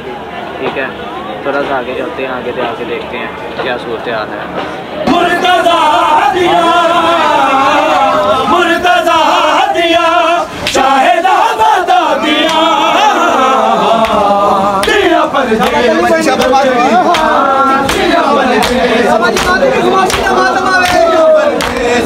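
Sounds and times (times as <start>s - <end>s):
crowd of men chanting: 4.9s - 22.0s.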